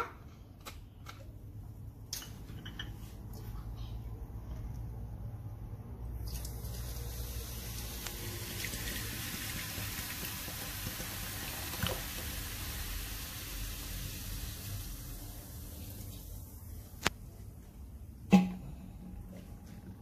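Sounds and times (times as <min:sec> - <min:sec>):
cola pouring and splashing: 0:06.2 - 0:16.3
cola fizzing: 0:06.2 - 0:16.4.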